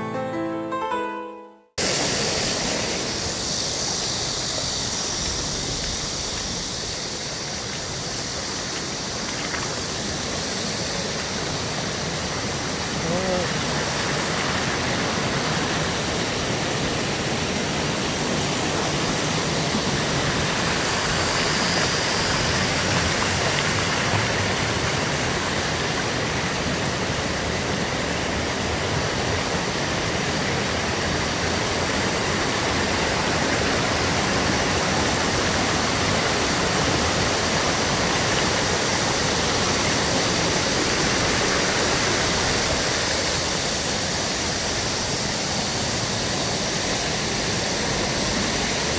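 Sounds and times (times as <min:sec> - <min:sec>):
stream rushing over rocks: 0:01.8 - 0:48.9.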